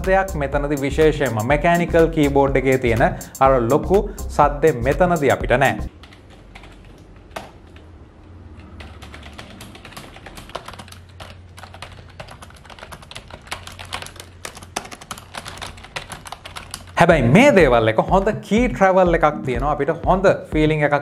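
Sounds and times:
soft keyboard typing: 5.2s - 7.9s, 8.5s - 17.0s.

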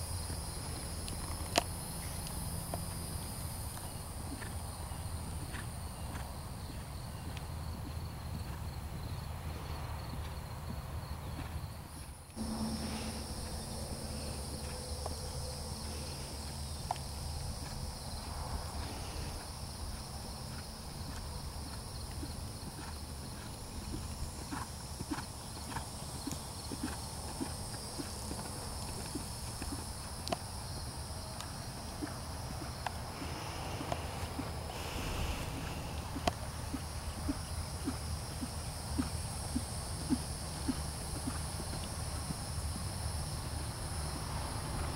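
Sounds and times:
steady low rumble: 12.4s - 18.8s, 31.9s - 44.9s
horse hoofbeats on sand: 18.7s - 30.9s, 31.8s - 42.8s.

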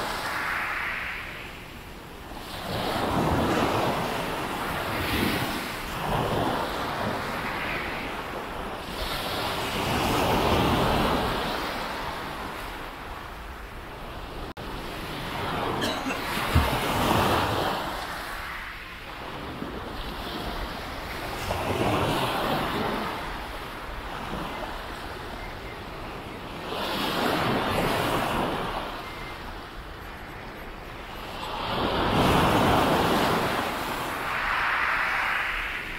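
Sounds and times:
sea waves breaking on beach: 0.0s - 35.9s.

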